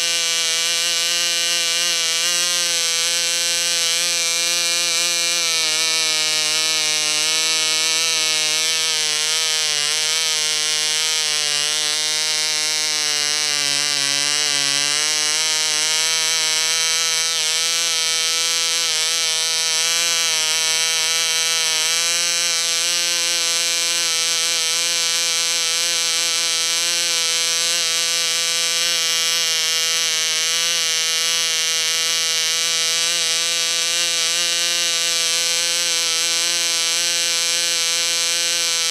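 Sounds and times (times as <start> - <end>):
model engine high-pitched whine: 0.0 - 38.9.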